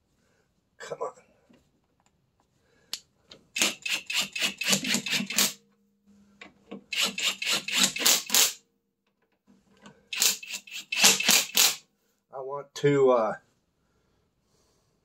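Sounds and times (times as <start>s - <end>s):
impact wrench hammering rattle: 3.6s - 5.6s, 6.9s - 8.6s, 10.1s - 11.8s
tool motor humming: 3.6s - 5.6s, 6.9s - 8.6s, 10.1s - 11.8s.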